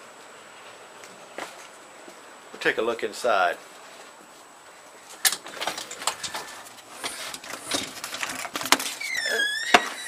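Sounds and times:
door hinge squeak: 8.9s - 10.0s.

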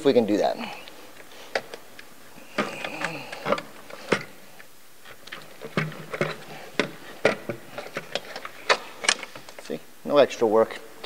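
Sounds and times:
plastic clicks and knocks: 5.2s - 9.6s.

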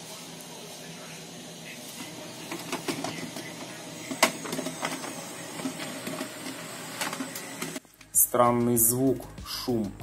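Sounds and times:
scanner carriage motor whirr: 0.2s - 7.8s.

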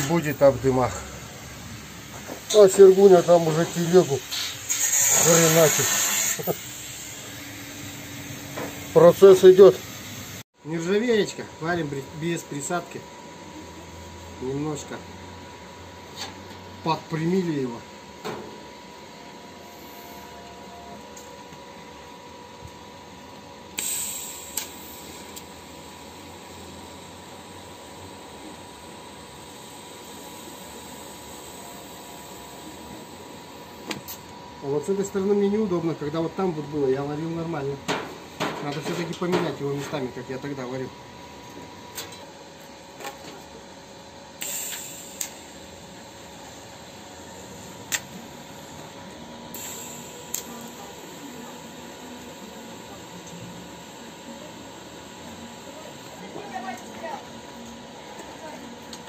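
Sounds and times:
welding equipment hissing: 0.0s - 10.4s, 23.7s - 35.5s, 44.4s - 57.7s
loud hissing burst: 2.5s - 10.4s, 23.8s - 25.3s
short hiss: 23.8s - 25.1s.

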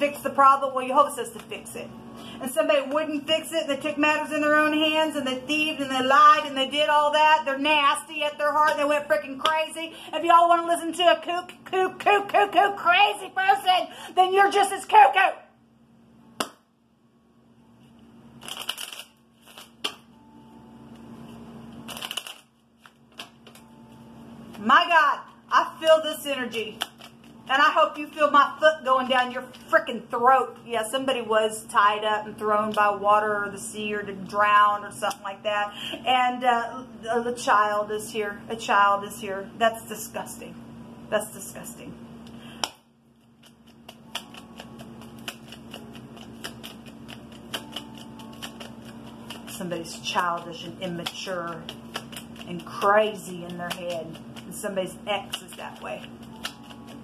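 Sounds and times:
faint steady hum: 0.0s - 57.0s
cards shuffled by hand: 18.4s - 20.0s, 21.7s - 23.7s, 26.7s - 27.5s, 42.6s - 57.0s
card snap: 56.4s - 56.9s.

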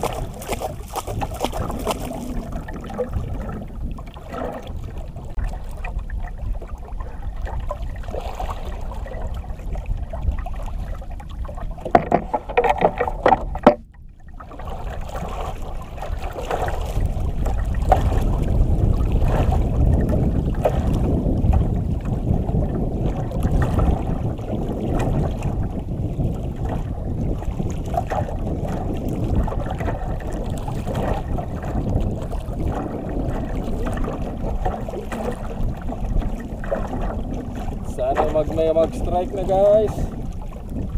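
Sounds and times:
water lapping at boat hull: 0.0s - 40.9s
wind buffeting microphone: 0.0s - 40.9s
clicks and knocks: 11.8s - 14.0s.

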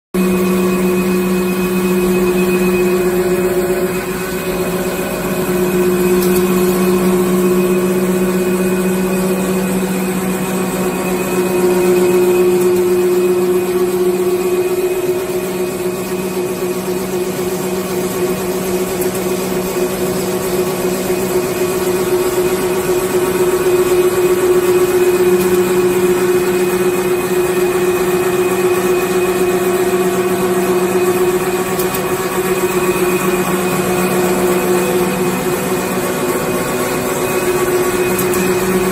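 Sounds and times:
high steady tone: 0.2s - 16.6s
paper machine humming: 0.2s - 38.9s.

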